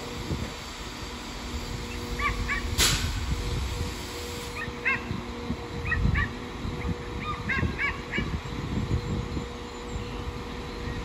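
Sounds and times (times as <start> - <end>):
diesel train engine hum: 0.0 - 11.0.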